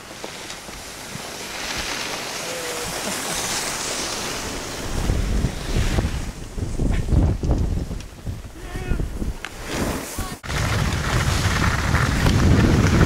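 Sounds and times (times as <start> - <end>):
skis hissing on snow: 0.0 - 7.0, 8.6 - 13.0
wind buffeting microphone: 4.4 - 13.0.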